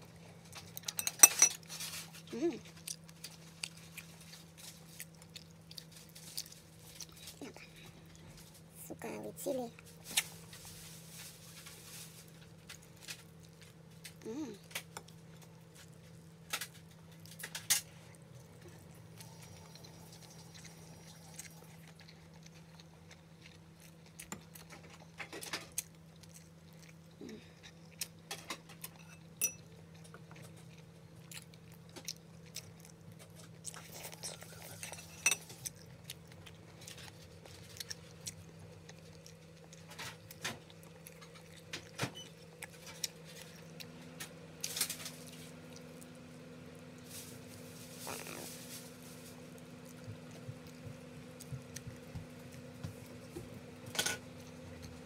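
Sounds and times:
chewing: 0.0s - 8.7s, 9.7s - 55.0s
steady low hum: 0.0s - 55.0s.

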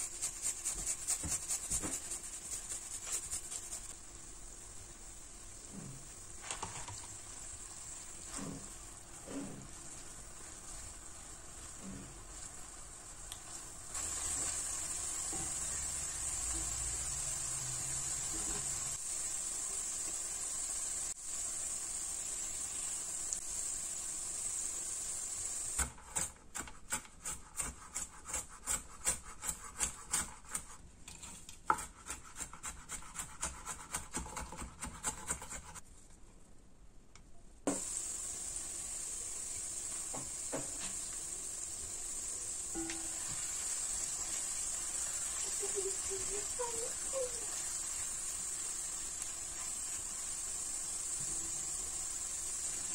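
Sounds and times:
spatula stirring: 0.0s - 4.0s
food sizzling in a frying pan: 0.0s - 26.3s, 37.7s - 52.9s.

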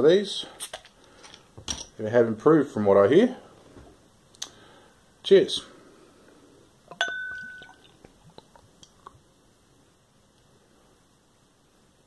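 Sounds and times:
glass clinking: 6.9s - 8.0s.

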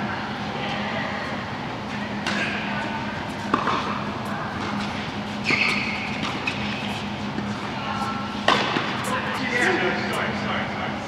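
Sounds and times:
low hum of hall: 0.0s - 11.0s
tennis balls knocking: 3.5s - 3.9s, 8.4s - 9.1s.

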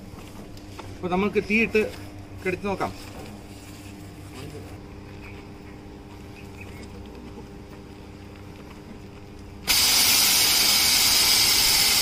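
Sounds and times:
low steady hum: 0.0s - 11.7s
fire extinguisher spray hissing: 9.7s - 12.0s.

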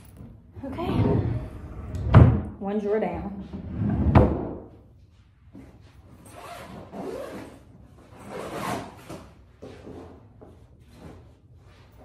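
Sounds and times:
clothes rustling: 4.9s - 12.0s
suitcase zipper rasping: 6.2s - 9.1s.

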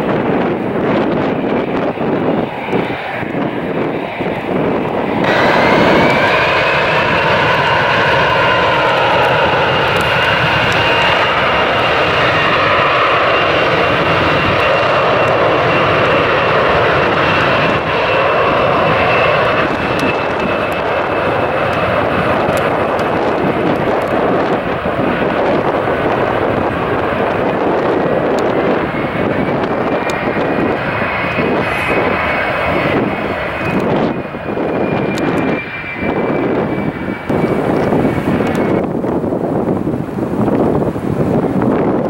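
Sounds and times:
jet engines roaring: 0.0s - 42.0s.

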